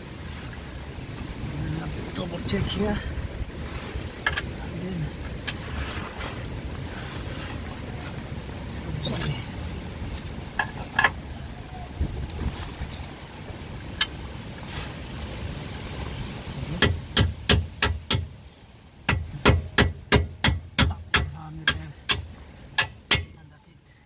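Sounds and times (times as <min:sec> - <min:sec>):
metal-on-metal taps: 0:04.2 - 0:04.5, 0:10.6 - 0:11.2, 0:22.8 - 0:23.4.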